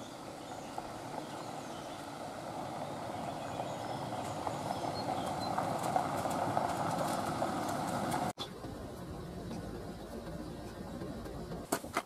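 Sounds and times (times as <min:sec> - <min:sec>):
tyres crunching over gravel: 0:00.0 - 0:08.3
van approaching: 0:00.0 - 0:12.0.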